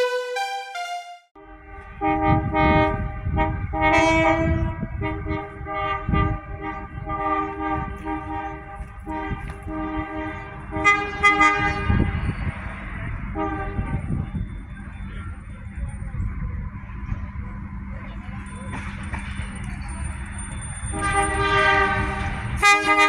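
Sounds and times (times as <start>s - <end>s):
railcar horn blasts: 0.0s - 12.5s, 13.2s - 14.6s, 20.9s - 23.0s.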